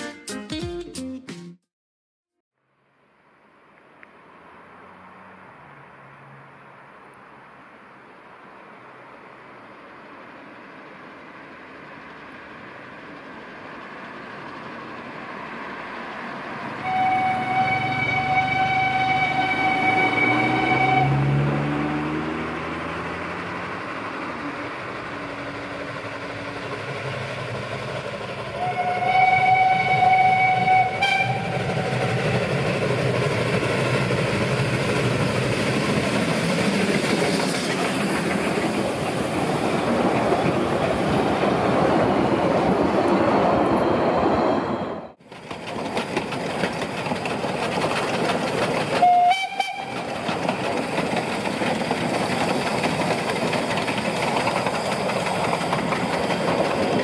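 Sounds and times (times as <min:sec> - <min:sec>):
train coaches clattering past: 0:09.6 - 0:57.0
steam whistle blast: 0:16.8 - 0:21.6, 0:28.6 - 0:31.5, 0:49.0 - 0:50.0.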